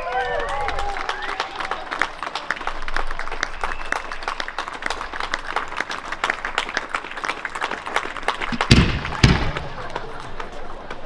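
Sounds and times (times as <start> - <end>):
spectators clapping: 0.0 - 11.0
loud firework bang: 8.6 - 10.0.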